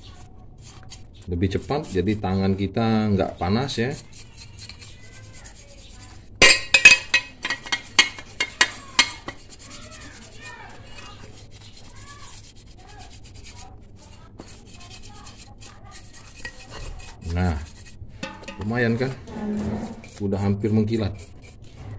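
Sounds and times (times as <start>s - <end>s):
loud scrubbing strokes: 3.6s - 6.3s, 7.4s - 21.9s
handling of metal cover: 6.4s - 9.7s, 18.2s - 20.3s.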